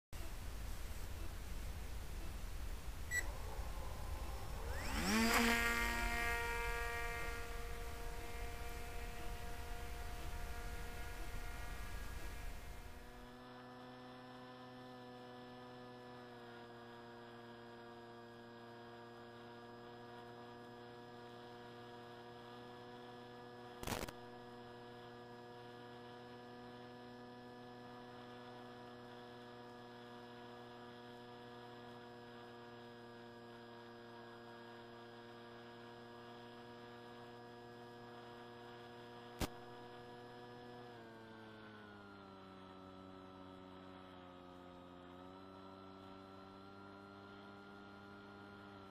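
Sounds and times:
electric motor and propeller hum: 0:00.2 - 0:48.9
short clicks: 0:23.8 - 0:24.2.

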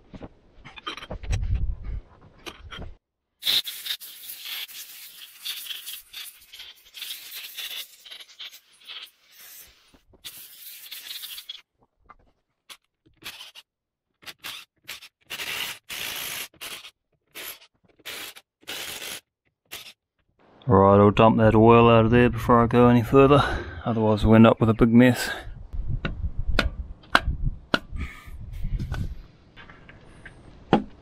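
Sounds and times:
compressed air blow gun blasting: 0:15.3 - 0:19.9.

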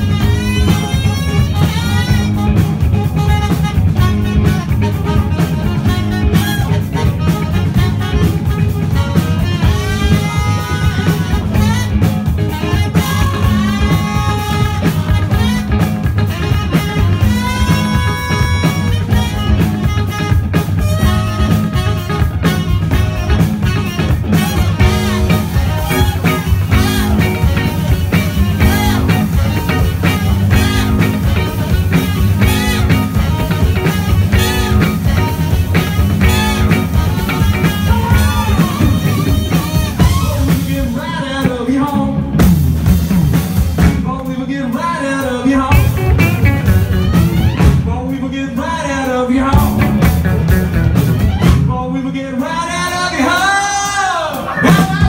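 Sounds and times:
electric guitar bent lead notes: 0:00.0 - 0:44.3, 0:45.6 - 0:48.0, 0:49.5 - 0:51.7
live rock band playing: 0:00.0 - 0:55.0.

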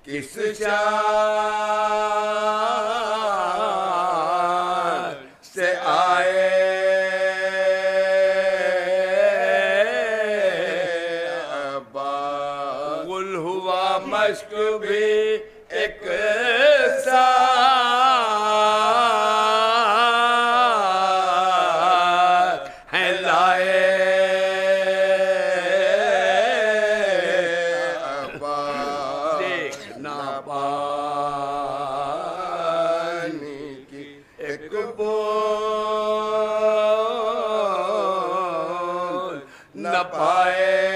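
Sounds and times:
men singing a low drone: 0:00.0 - 0:40.9
man singing long held notes: 0:12.5 - 0:40.9.

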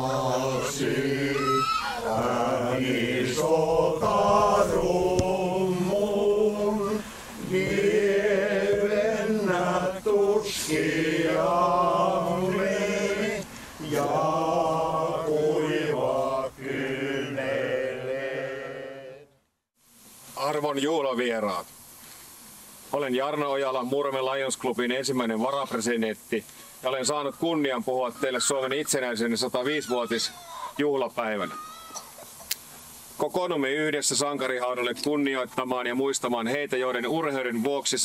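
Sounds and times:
male choir singing a hymn: 0:00.0 - 0:19.3.

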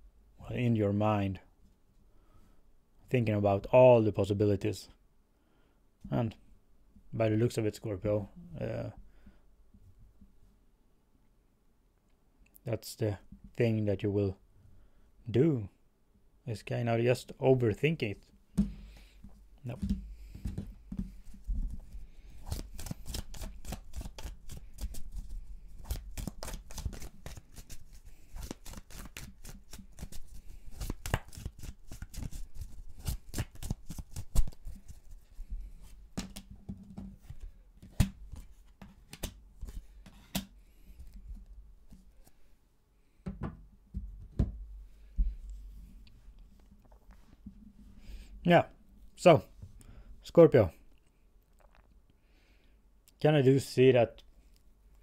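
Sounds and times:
cards being shuffled: 0:19.7 - 0:36.5, 0:37.2 - 0:42.4.

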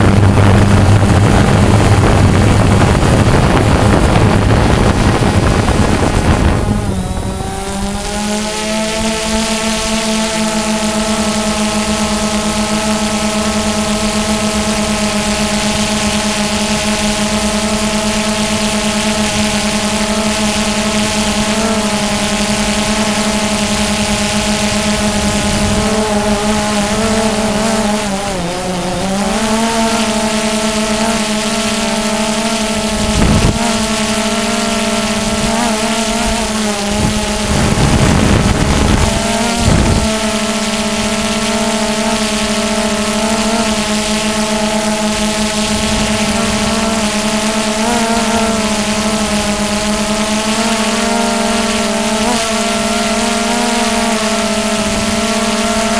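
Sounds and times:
wind buffeting microphone: 0:00.0 - 0:09.8, 0:22.5 - 0:29.2, 0:32.7 - 0:40.7
drone motors whining: 0:00.0 - 0:55.9.

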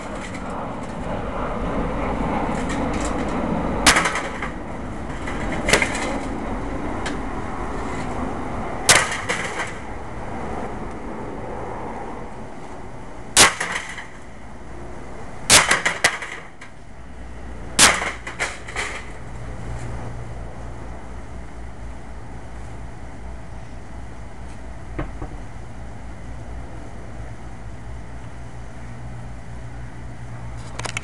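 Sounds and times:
axe striking metal heater: 0:00.0 - 0:01.0, 0:02.5 - 0:06.3, 0:08.8 - 0:09.9, 0:13.3 - 0:14.2, 0:15.5 - 0:16.8, 0:17.8 - 0:19.2
crushed housing rattling: 0:03.9 - 0:06.4.

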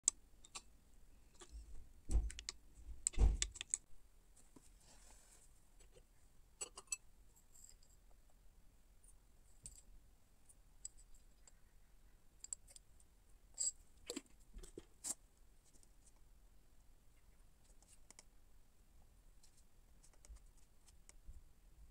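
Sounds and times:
spoon clinking on porcelain cup: 0:06.6 - 0:07.0.

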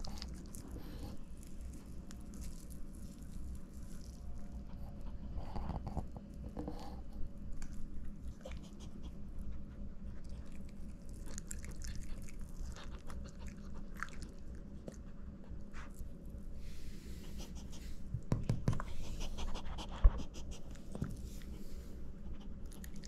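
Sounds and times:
dog chewing chicken: 0:00.0 - 0:15.9, 0:22.2 - 0:23.0.

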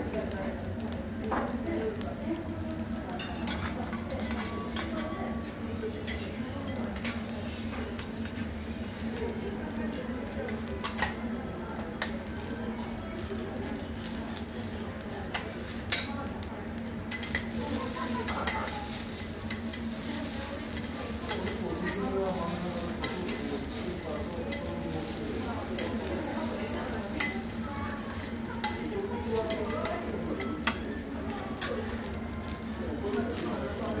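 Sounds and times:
food sizzling on a griddle: 0:00.0 - 0:34.0
metal spatulas scraping and tapping: 0:03.2 - 0:05.1, 0:07.0 - 0:07.2, 0:10.5 - 0:11.2, 0:13.8 - 0:16.1, 0:17.1 - 0:17.5, 0:20.7 - 0:22.1, 0:22.8 - 0:23.9, 0:29.5 - 0:30.8.

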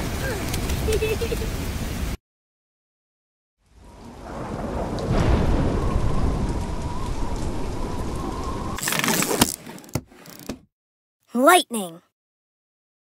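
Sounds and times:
heavy rain: 0:00.0 - 0:02.2, 0:03.6 - 0:08.8
low rumbling thunder: 0:03.7 - 0:08.8.

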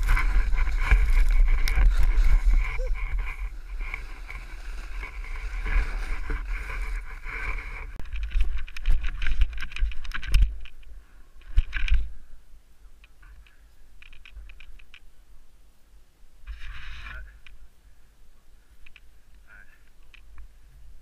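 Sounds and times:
snow crunching under skis: 0:00.0 - 0:08.0
wind on microphone: 0:00.0 - 0:10.8.

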